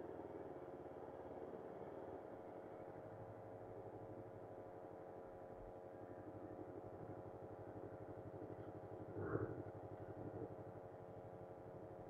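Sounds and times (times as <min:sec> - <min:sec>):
motorcycle engine idling: 0:02.8 - 0:12.0.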